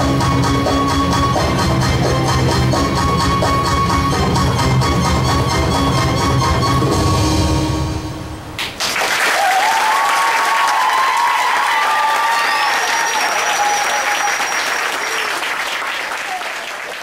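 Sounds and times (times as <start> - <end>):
audience applauding and cheering: 8.6 - 17.0
shouted whoops: 9.3 - 15.4
long high whistle: 12.1 - 15.3.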